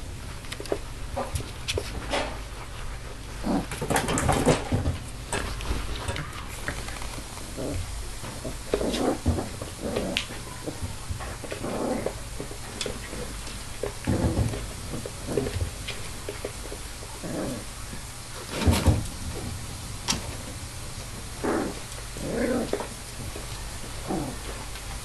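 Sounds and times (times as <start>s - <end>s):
puppy noises: 0.6s - 4.7s, 5.3s - 18.7s, 21.4s - 24.8s
puppy paws scrabbling on box: 3.4s - 20.3s.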